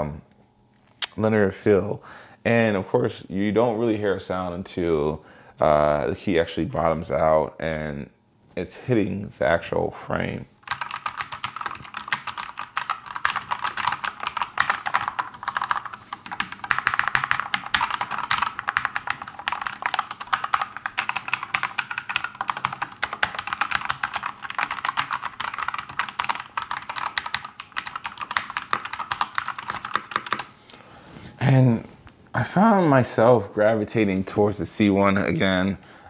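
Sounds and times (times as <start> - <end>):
fast mechanical keyboard typing: 10.6 - 30.5.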